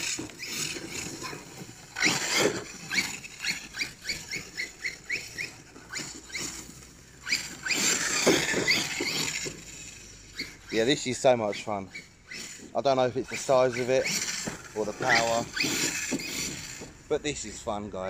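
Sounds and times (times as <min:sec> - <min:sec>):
electric motor whining: 0:00.0 - 0:17.6.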